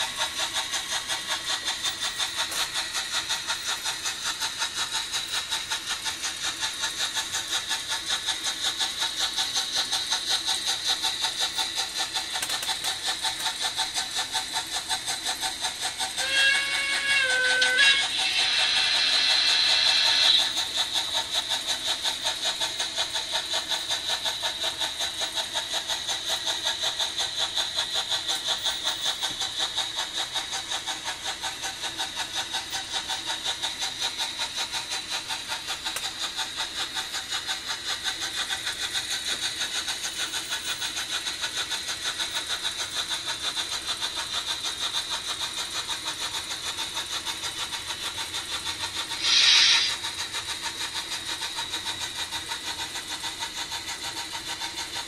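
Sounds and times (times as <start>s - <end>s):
model train clattering on track: 0.0s - 55.0s
short hiss: 49.1s - 50.1s.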